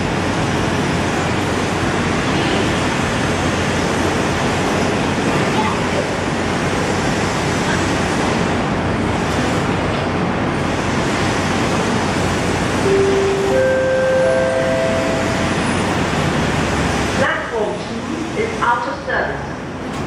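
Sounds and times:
train rushing rumble: 0:00.0 - 0:18.4
steady tone: 0:12.8 - 0:16.7.

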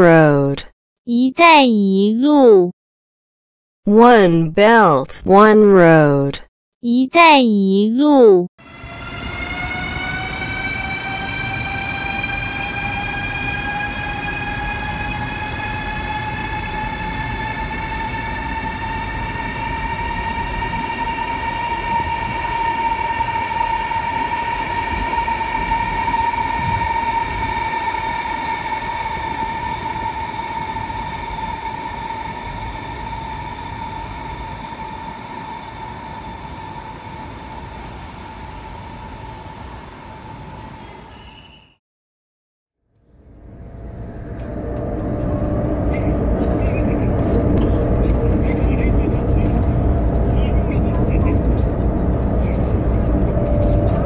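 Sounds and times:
electric train motors whining: 0:08.6 - 0:40.9, 0:43.2 - 0:54.0.

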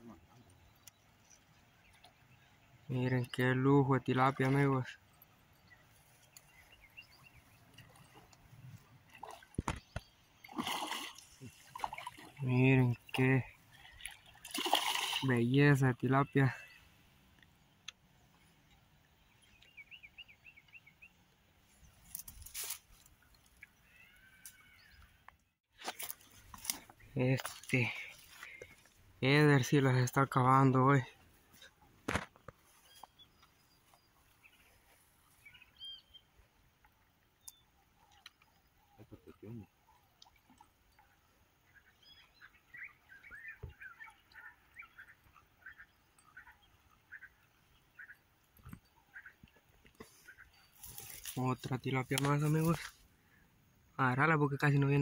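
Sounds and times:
bird chirping: 0:05.5 - 0:08.8, 0:17.7 - 0:22.1, 0:32.7 - 0:36.4, 0:41.0 - 0:52.9
rustling and scraping of fish: 0:22.0 - 0:23.2, 0:50.0 - 0:51.4.

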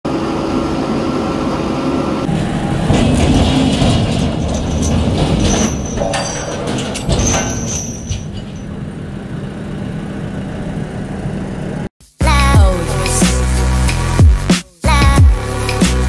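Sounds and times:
diesel engine running: 0:00.1 - 0:05.9, 0:06.7 - 0:16.0
metal squeals: 0:02.3 - 0:09.1.

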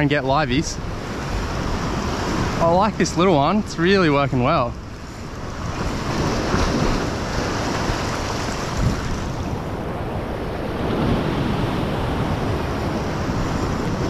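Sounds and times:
wind buffeting microphone: 0:00.0 - 0:14.0
ocean swell washing over rocks: 0:04.8 - 0:14.0.

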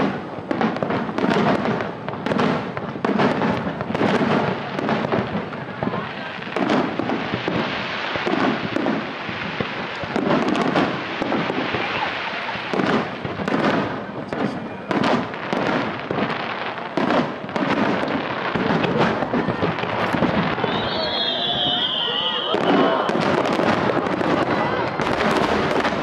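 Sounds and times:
fireworks launching and bursting: 0:00.0 - 0:26.0.

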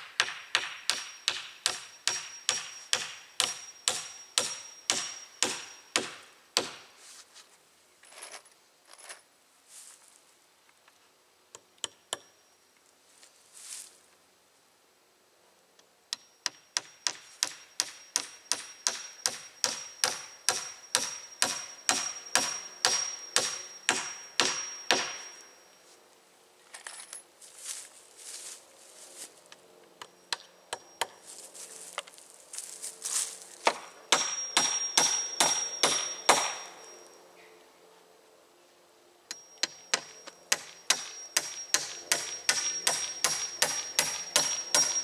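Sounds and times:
hammer ringing on nails: 0:00.1 - 0:06.8, 0:16.1 - 0:25.6, 0:33.7 - 0:37.0, 0:39.3 - 0:45.0.

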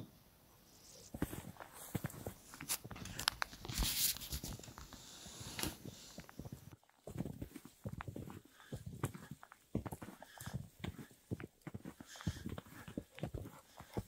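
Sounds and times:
footsteps crunching in snow: 0:01.1 - 0:14.0.

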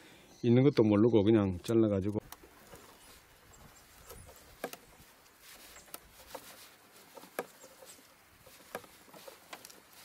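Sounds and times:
dry twigs crackling and snapping: 0:02.0 - 0:10.0
faint rustling: 0:02.1 - 0:10.0.

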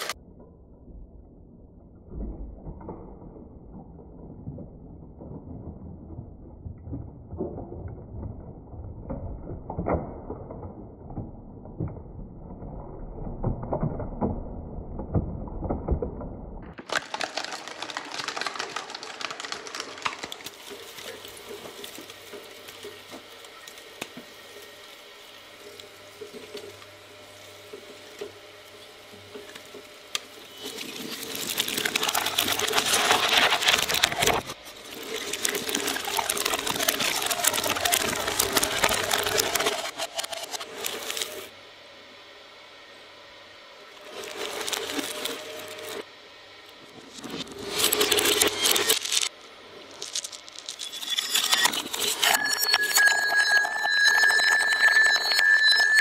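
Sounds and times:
shredder crunching plastic ball: 0:16.7 - 0:23.1, 0:30.2 - 0:41.5, 0:44.0 - 0:46.1, 0:47.1 - 0:56.0.

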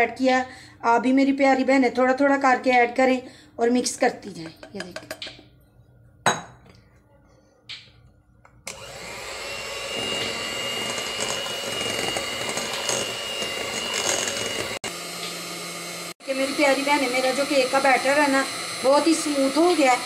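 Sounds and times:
electric hand mixer whining: 0:08.6 - 0:20.0.

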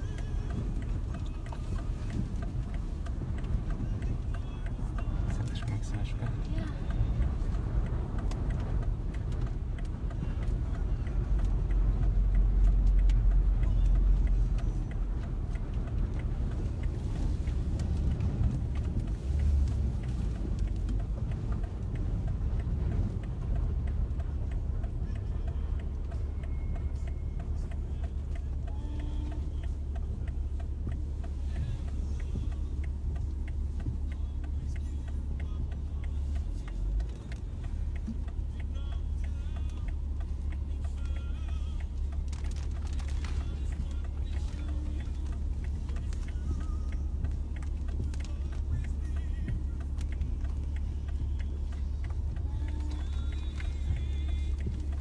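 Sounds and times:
road and wind noise in car: 0:00.0 - 0:55.0.

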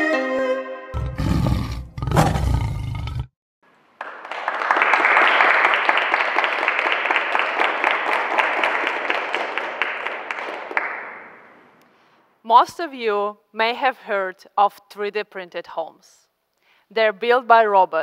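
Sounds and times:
big cat roaring: 0:01.0 - 0:03.3
audience applauding: 0:04.0 - 0:11.5.

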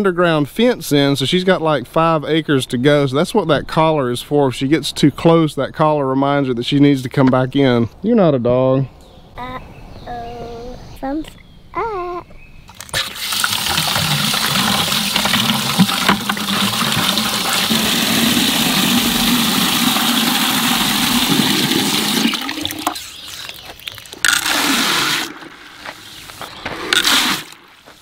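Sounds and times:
water pouring into plastic bucket: 0:12.8 - 0:25.8.

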